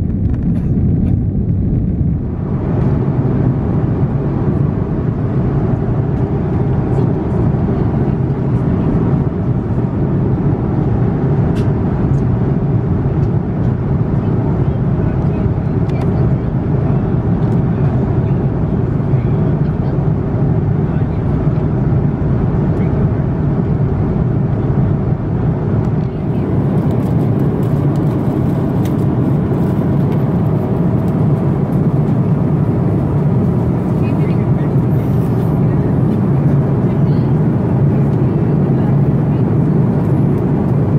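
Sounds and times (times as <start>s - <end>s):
airplane cabin drone: 0.0s - 40.9s.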